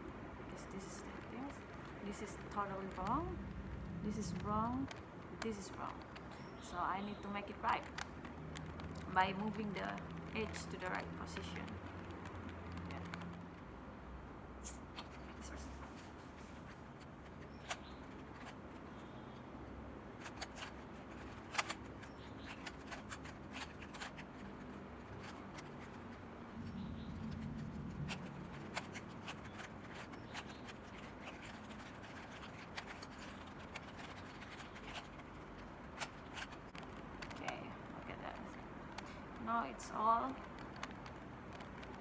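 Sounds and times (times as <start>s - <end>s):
low hum: 0.0s - 6.0s, 26.4s - 29.5s
puzzle cube clicking and scraping: 4.0s - 13.6s, 14.7s - 19.1s, 20.1s - 42.0s.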